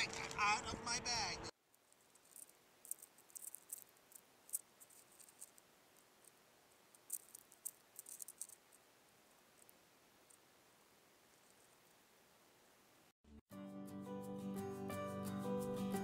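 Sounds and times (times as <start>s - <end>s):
prairie dog clicking and scratching: 1.7s - 10.4s.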